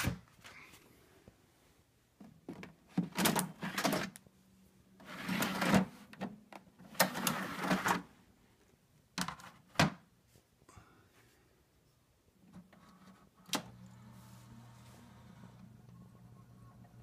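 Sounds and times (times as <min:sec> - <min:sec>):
plastic sliding and scraping: 0:05.0 - 0:06.3, 0:06.9 - 0:08.1, 0:12.5 - 0:16.0.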